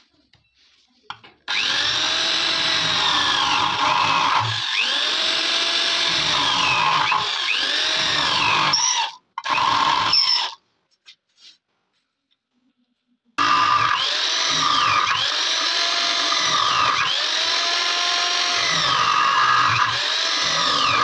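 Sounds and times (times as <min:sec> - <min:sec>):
power tool grinding metal: 0:01.5 - 0:10.6, 0:13.4 - 0:21.0.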